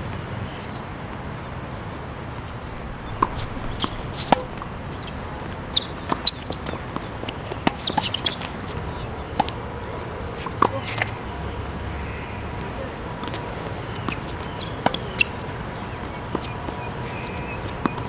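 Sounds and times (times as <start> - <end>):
steady background hiss: 0.0 - 18.0
tennis ball hitting racket: 2.4 - 9.6, 13.2 - 15.5
tennis ball bouncing on court: 2.5 - 9.6, 12.6 - 18.0.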